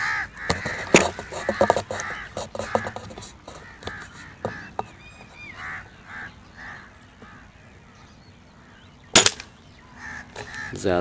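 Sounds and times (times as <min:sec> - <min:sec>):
crows cawing: 0:00.0 - 0:11.0
air rifle shot: 0:09.1 - 0:09.5.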